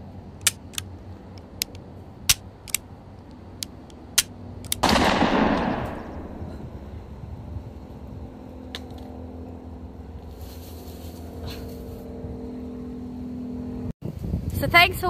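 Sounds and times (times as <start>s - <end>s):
toy pistols firing cracks: 0.4s - 2.8s, 3.6s - 6.4s.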